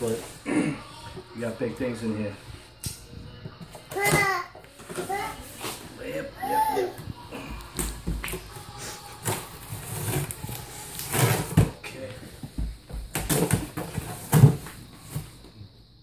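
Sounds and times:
knife scraping through packing tape: 9.2 - 11.6.

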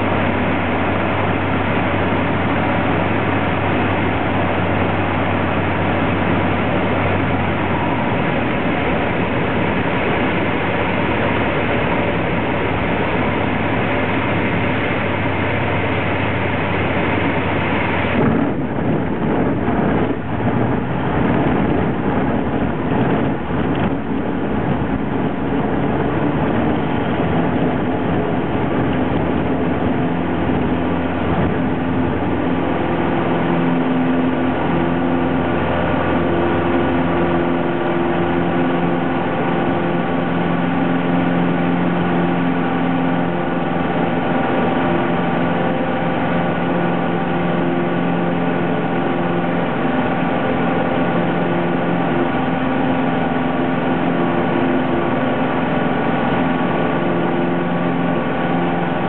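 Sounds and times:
aircraft engine drone in cabin: 0.0 - 59.0.

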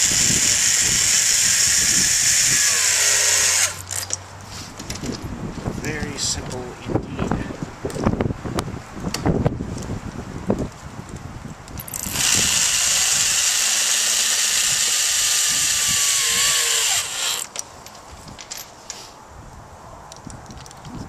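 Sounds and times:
power drill driving a screw: 0.0 - 4.0, 11.9 - 17.5.

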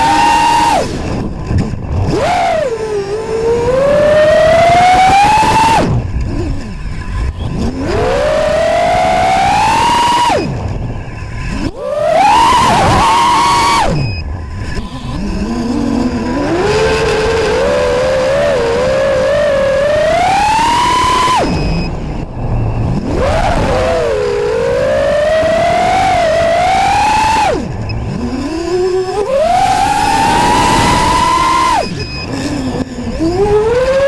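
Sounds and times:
quadcopter motors whining: 0.0 - 34.0.

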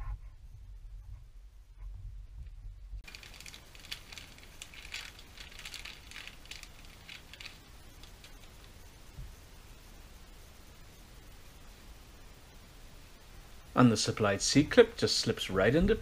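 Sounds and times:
hands rummaging among tools: 3.0 - 8.5.

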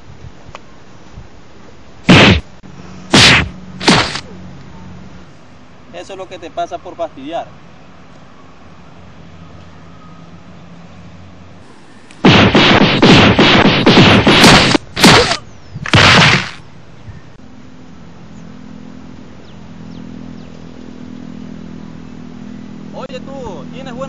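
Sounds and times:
distant motor vehicle hum: 0.0 - 24.0
fight hit and blast effects: 2.1 - 2.5, 3.1 - 4.2, 12.2 - 16.6.

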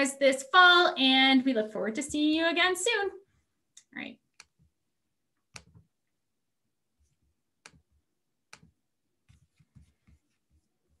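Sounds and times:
computer mouse clicks: 3.7 - 4.6, 5.5 - 5.9, 7.6 - 7.9, 8.5 - 8.8.

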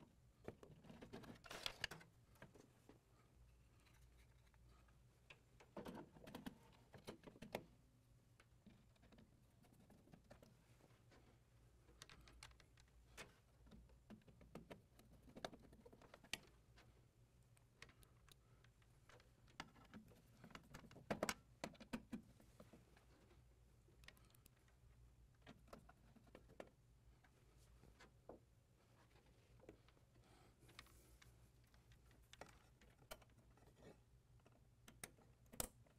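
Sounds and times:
screwdriver clicks and taps on metal: 34.4 - 35.9.

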